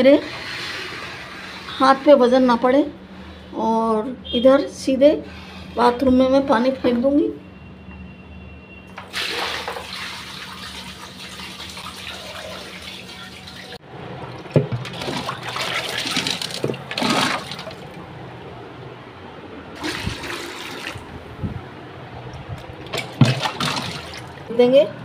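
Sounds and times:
water pouring onto floor: 9.1 - 13.8.

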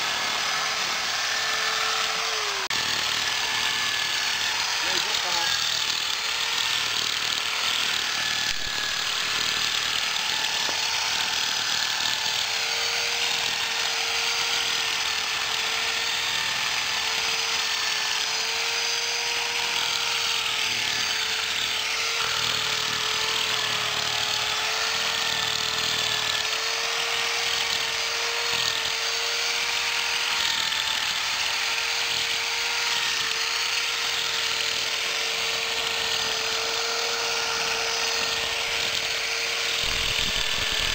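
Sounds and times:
electric drill motor whining: 0.0 - 40.9.

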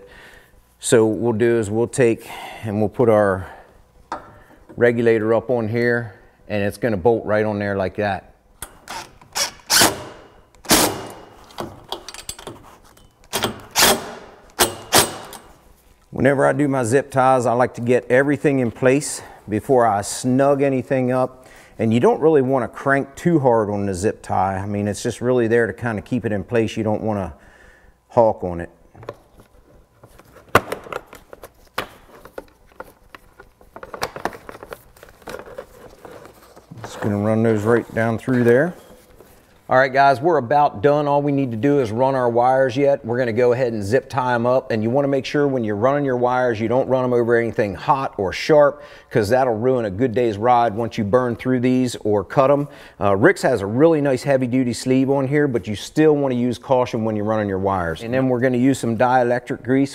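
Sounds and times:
impact driver bursts: 8.8 - 11.4, 13.3 - 15.5
rustling and crinkling of wiring: 29.0 - 40.2.

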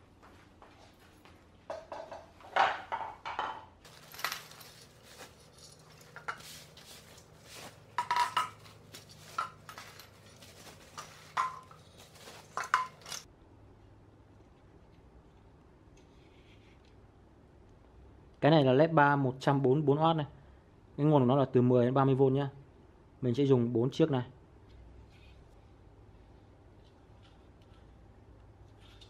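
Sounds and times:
metallic clinks and knocks: 1.7 - 13.3
bubble wrap packaging handling: 3.9 - 13.3.

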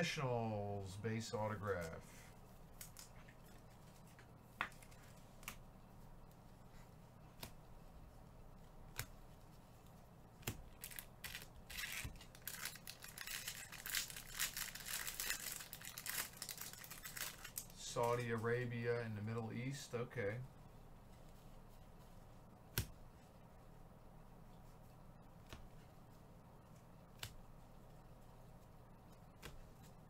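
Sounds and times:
wrapper tearing and crinkling: 10.7 - 17.8.

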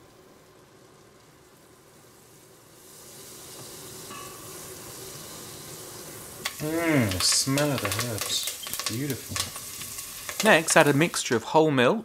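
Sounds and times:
butter sizzling in a pot: 0.0 - 11.7
wooden spoon stirring: 6.5 - 11.4.

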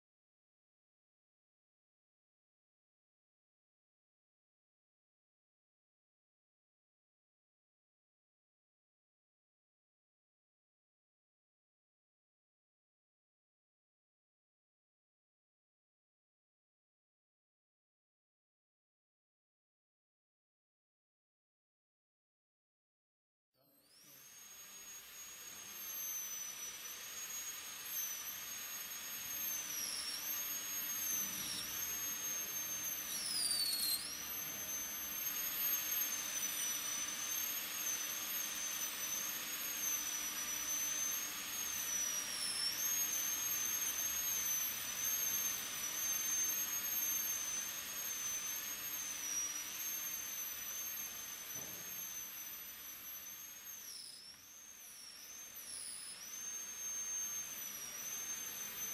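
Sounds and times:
dental drill whining: 23.6 - 58.9.

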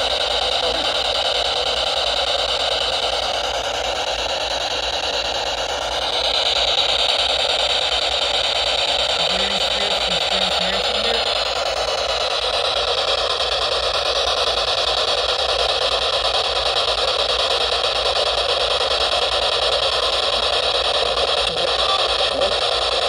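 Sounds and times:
radio static hiss: 0.0 - 1.4, 9.0 - 12.9, 20.2 - 23.0.

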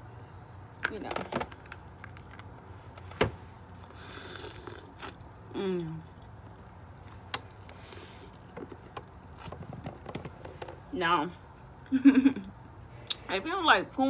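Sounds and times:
soft mouth and handling sounds: 1.5 - 10.9.

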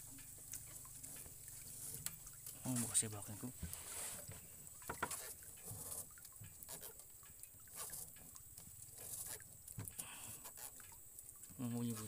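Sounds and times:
catfish creaking grunts: 4.8 - 7.1, 8.9 - 11.0.

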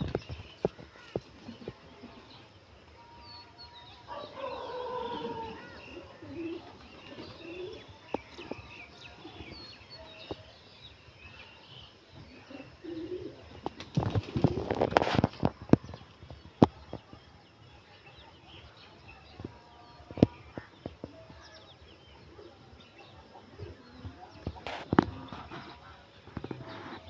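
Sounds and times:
pigeons cooing: 4.1 - 8.5, 12.3 - 15.3
pigeon wings flapping: 13.6 - 15.5.

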